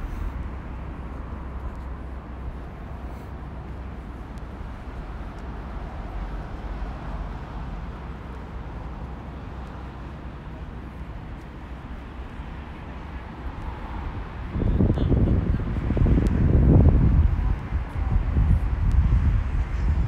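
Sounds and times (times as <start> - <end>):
road traffic hum: 0.0 - 20.0.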